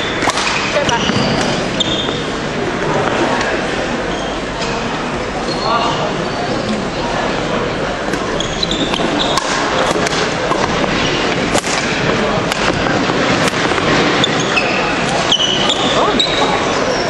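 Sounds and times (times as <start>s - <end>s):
murmur of spectators: 0.0s - 17.0s
rackets striking shuttlecock: 0.1s - 2.2s, 8.1s - 15.7s
shoe squeaks on wooden floor: 0.9s - 2.3s, 8.3s - 9.9s, 14.1s - 17.0s.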